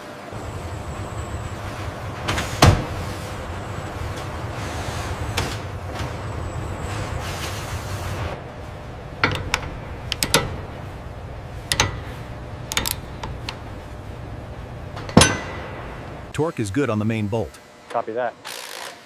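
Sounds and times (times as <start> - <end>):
low machinery hum: 0.0 - 19.0
wrench clanking on metal fitting: 11.7 - 12.1.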